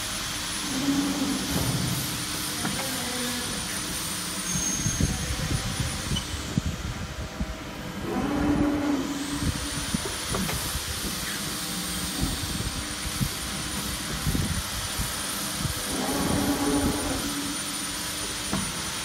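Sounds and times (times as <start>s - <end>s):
press machine hum and rumble: 0.0s - 19.0s.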